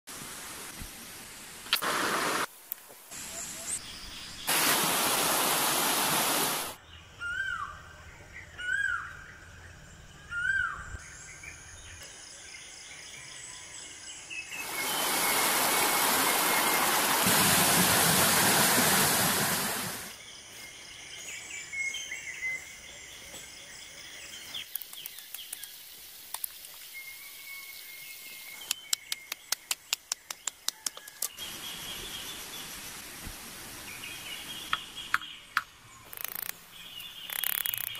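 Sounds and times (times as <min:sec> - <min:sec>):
stream rushing over rocks: 0:04.5 - 0:06.8, 0:14.6 - 0:20.2
birds chirping: 0:12.6 - 0:17.8
sharp clicks: 0:35.6 - 0:36.6, 0:37.2 - 0:37.9.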